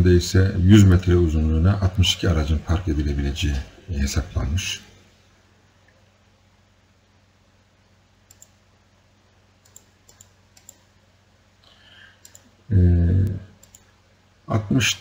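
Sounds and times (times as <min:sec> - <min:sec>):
low steady hum: 0:00.0 - 0:15.0
faint clicks: 0:08.2 - 0:08.6, 0:09.6 - 0:10.9, 0:11.6 - 0:12.6, 0:13.2 - 0:13.9
man humming: 0:12.7 - 0:13.5.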